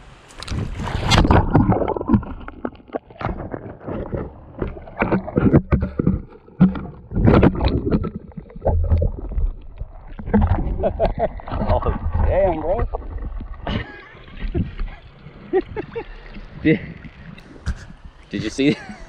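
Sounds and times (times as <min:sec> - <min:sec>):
water gurgling against microphone: 0:00.2 - 0:19.0
camera knocking and splashing: 0:00.4 - 0:19.0
person falling on mud: 0:00.8 - 0:08.1.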